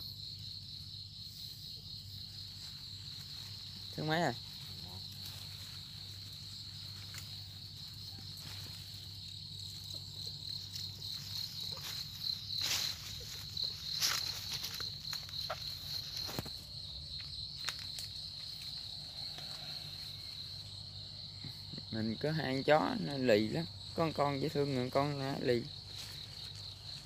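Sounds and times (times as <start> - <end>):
high-pitched insect chorus: 0.0 - 27.0
leaves and stems rustling: 2.2 - 20.8, 23.2 - 27.0
footsteps through undergrowth: 2.3 - 20.8, 25.7 - 27.0.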